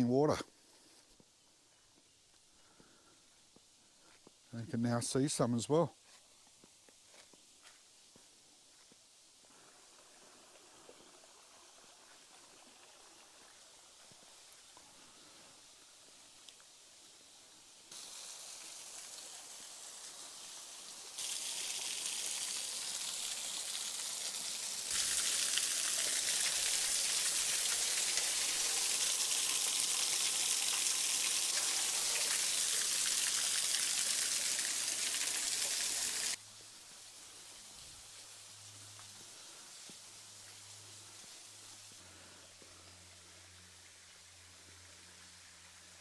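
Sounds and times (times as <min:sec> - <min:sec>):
waterfall splashing onto rocks: 0:18.0 - 0:36.4.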